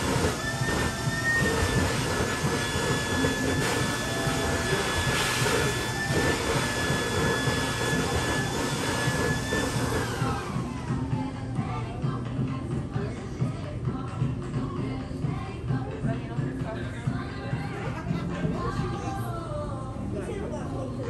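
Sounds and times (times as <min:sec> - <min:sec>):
blower whining over rushing air: 0:00.0 - 0:13.4.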